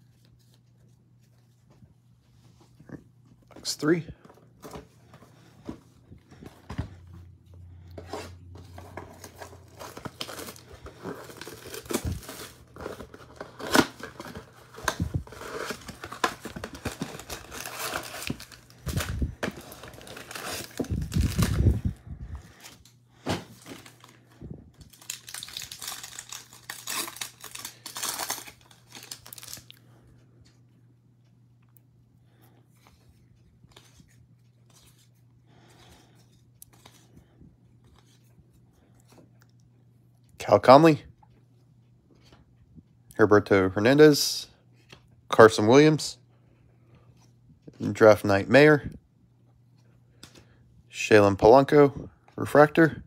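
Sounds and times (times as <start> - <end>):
plastic wrapping crinkling: 8.7 - 22.8, 23.5 - 29.8
cardboard box tearing: 9.0 - 21.7.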